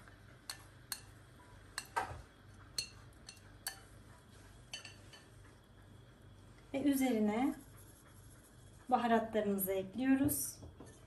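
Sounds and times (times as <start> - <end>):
kitchenware clinking on frying pan: 1.8 - 2.2, 2.8 - 3.9, 4.7 - 5.3.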